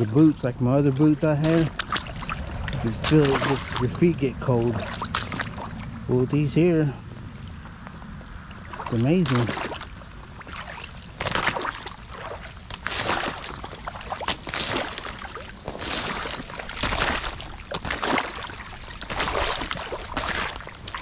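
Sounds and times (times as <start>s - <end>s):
boots splashing through puddles: 0.0s - 21.0s.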